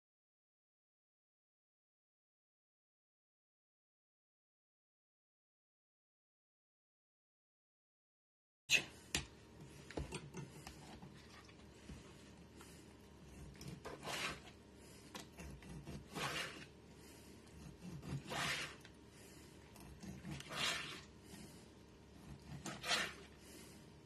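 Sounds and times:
knife slicing through meat: 13.2 - 16.8, 17.4 - 19.0, 19.7 - 21.5, 22.2 - 23.4.

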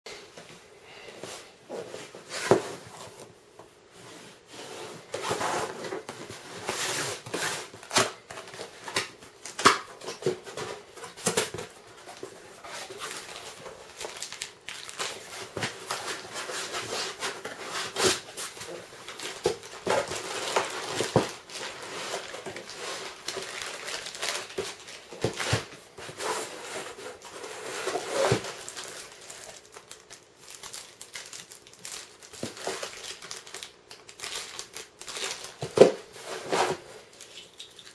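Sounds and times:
plastic bags crinkling: 7.2 - 25.8, 28.0 - 36.0.

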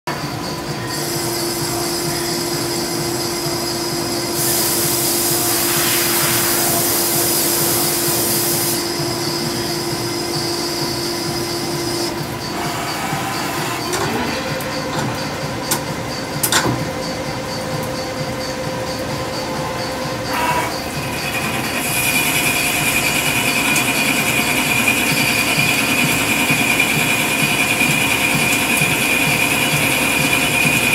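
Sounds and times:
lathe running with steady hum: 0.1 - 30.9
coolant hiss: 1.0 - 13.7
coolant spraying hiss: 4.3 - 9.0.

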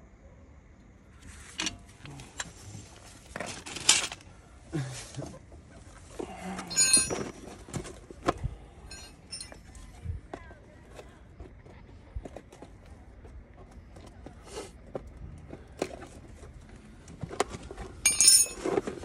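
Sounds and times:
metal tools clinking: 3.4 - 4.2, 6.6 - 7.4, 8.9 - 9.7, 18.0 - 18.9
short ringing metal clang: 6.7 - 7.2.

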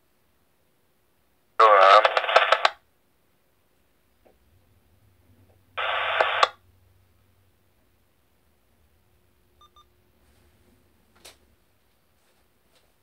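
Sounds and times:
radio hiss burst: 1.6 - 2.8, 5.8 - 6.6
radio transmission clicks: 1.6 - 2.8, 5.8 - 6.6.

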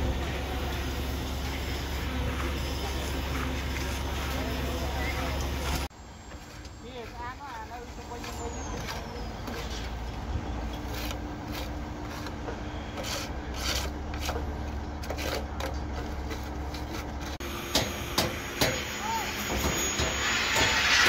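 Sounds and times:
trowel scraping wet concrete: 6.4 - 17.4.

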